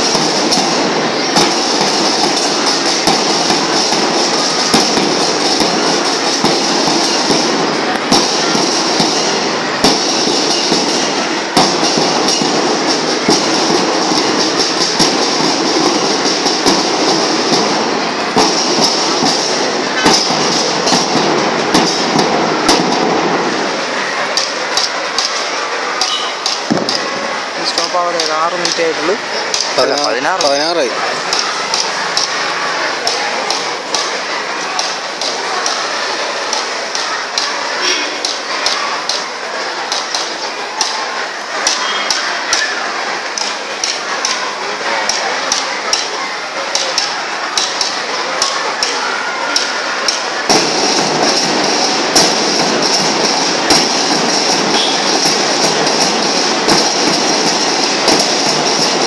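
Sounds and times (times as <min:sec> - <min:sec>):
marching band playing: 0:00.0 - 0:25.0, 0:50.4 - 0:59.0
heavy drum strokes: 0:00.0 - 0:59.0
snare drums rattling: 0:00.0 - 0:59.0.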